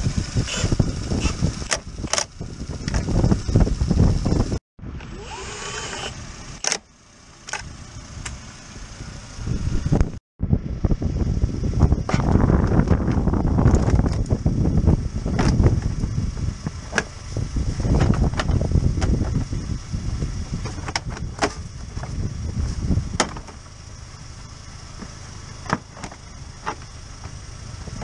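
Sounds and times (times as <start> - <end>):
low rumble: 0.0 - 5.5, 6.2 - 28.0.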